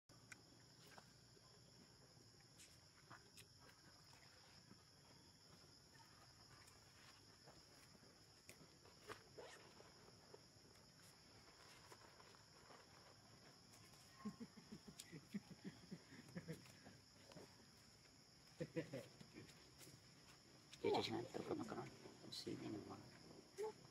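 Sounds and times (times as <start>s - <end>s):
high-pitched insect chorus: 0.1s - 23.9s.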